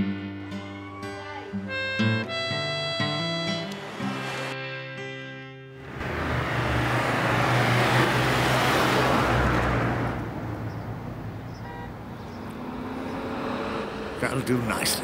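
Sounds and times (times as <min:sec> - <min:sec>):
car passing by: 0:03.1 - 0:04.6, 0:05.8 - 0:15.0.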